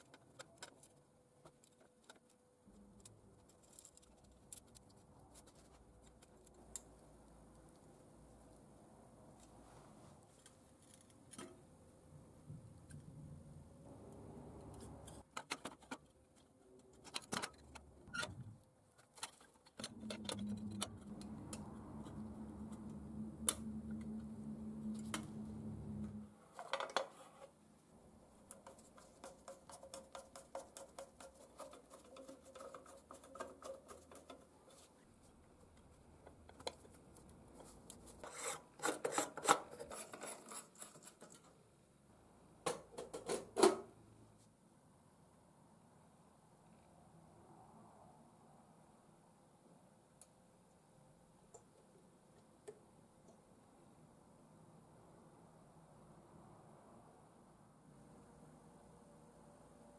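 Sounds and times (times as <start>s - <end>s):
metal parts clicking and knocking: 0.0s - 6.8s
steady low hum: 19.8s - 26.3s.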